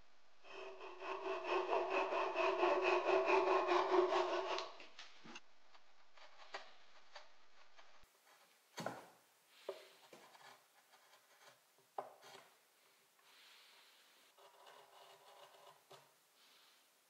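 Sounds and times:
hand saw sawing wood: 0:00.5 - 0:04.9.

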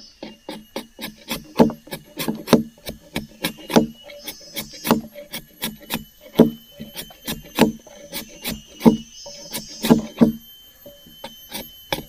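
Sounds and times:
machete scraping wood: 0:00.0 - 0:12.0.

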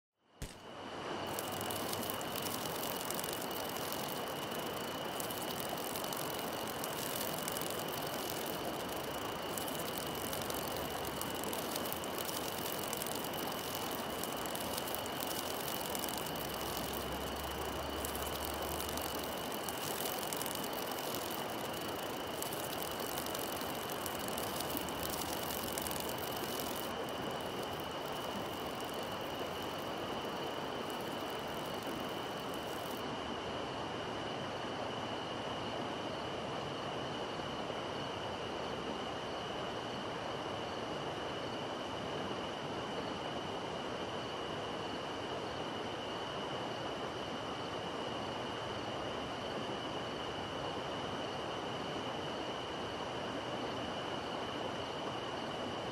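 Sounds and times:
high-pitched whine: 0:00.4 - 0:33.0
steady hiss: 0:00.4 - 0:33.1.

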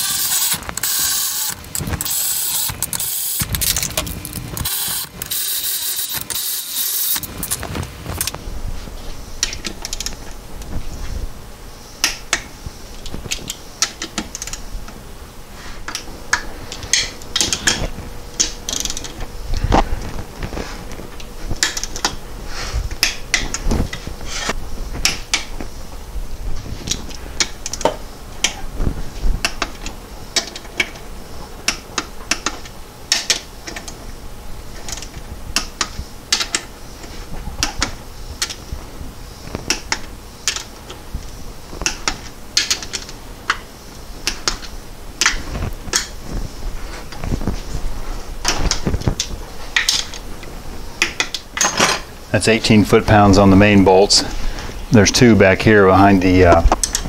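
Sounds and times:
hand ratchet clicking: 0:00.0 - 0:07.6, 0:18.4 - 0:19.1.

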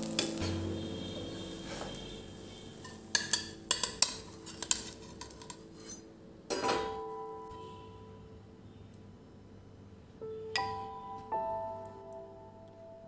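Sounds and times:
metal spatula scraping a griddle: 0:00.0 - 0:06.1.

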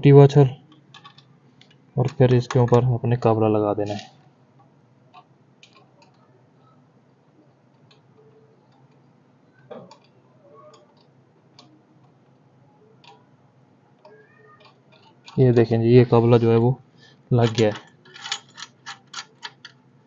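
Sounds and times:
small metallic clicks and taps: 0:04.6 - 0:06.2, 0:09.6 - 0:12.2, 0:14.0 - 0:15.7.

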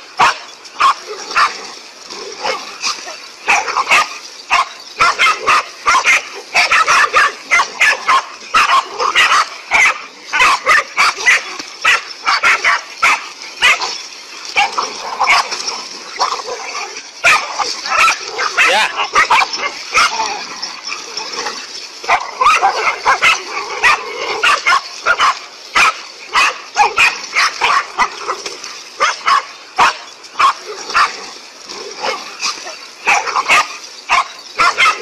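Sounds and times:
dogs barking: 0:00.2 - 0:35.0
dogs yipping: 0:00.2 - 0:35.0.

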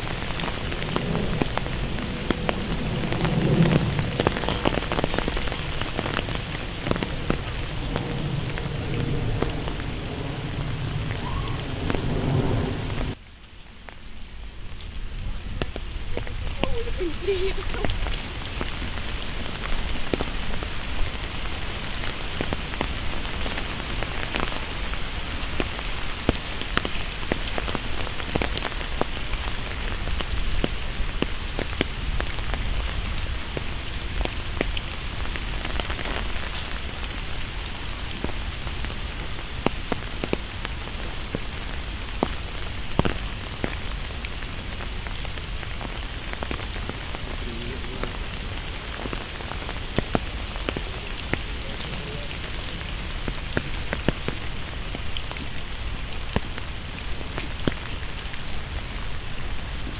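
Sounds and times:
close raindrop hits: 0:00.0 - 0:59.9
steady rain falling: 0:00.0 - 0:59.9.

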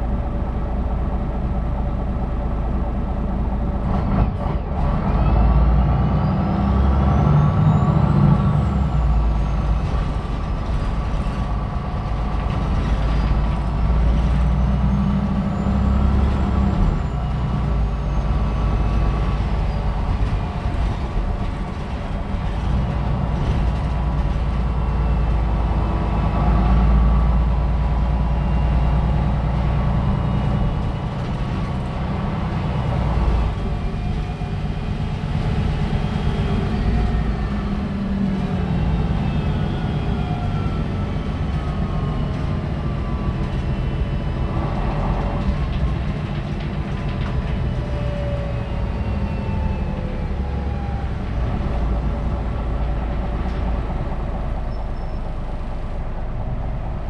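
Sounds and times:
bus diesel engine: 0:00.0 - 0:57.0.

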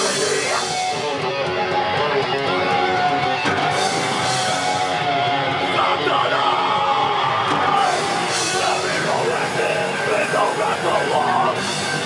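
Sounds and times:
distorted electric guitars: 0:00.0 - 0:12.0
metal band playing live: 0:00.0 - 0:12.0.

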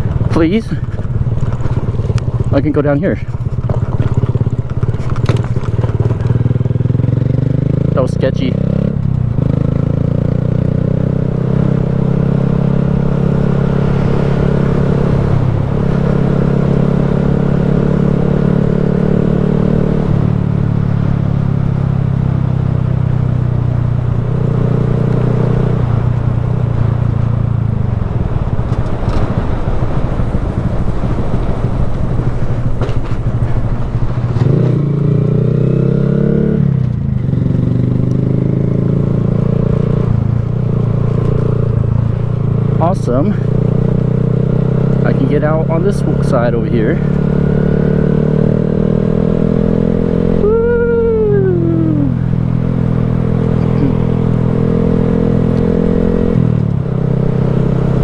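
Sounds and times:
motorcycle engine riding: 0:00.0 - 0:58.0.

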